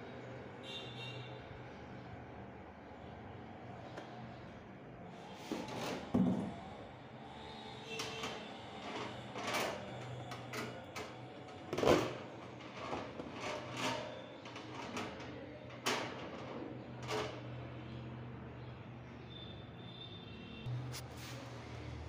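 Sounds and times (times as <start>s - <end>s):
plastic fan parts clicking and knocking: 7.8s - 17.6s.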